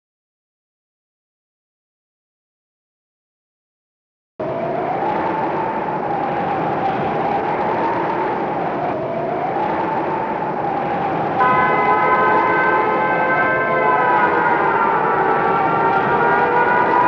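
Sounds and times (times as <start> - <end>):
howling storm wind: 4.4 - 17.0
steady ringing tones: 11.4 - 17.0.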